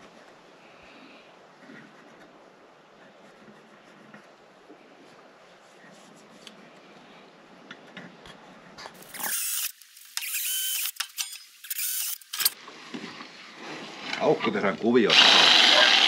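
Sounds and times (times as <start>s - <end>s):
pencil scratching on plywood: 1.6s - 4.4s
cordless drill boring wood: 9.1s - 12.6s, 15.1s - 16.0s.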